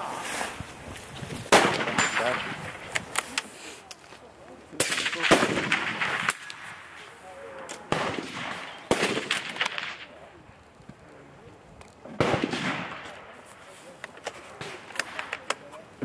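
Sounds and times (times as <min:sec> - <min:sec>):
rifle shots echoing: 0:01.5 - 0:02.9, 0:04.8 - 0:07.0, 0:07.9 - 0:10.1, 0:12.2 - 0:13.4.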